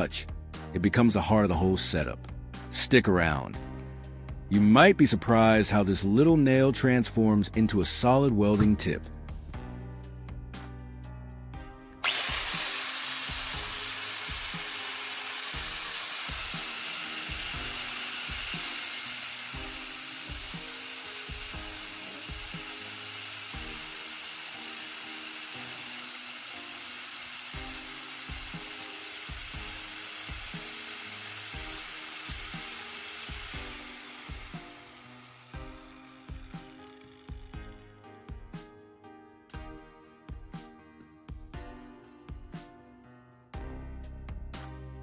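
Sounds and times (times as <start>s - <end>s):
angle grinder grinding metal: 12.0s - 38.0s.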